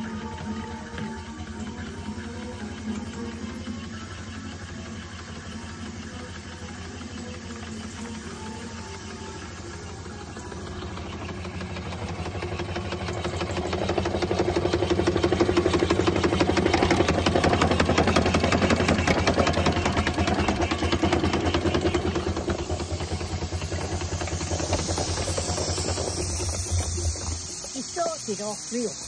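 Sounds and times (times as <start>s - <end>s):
steam engine exhaust beating: 0.0s - 29.0s.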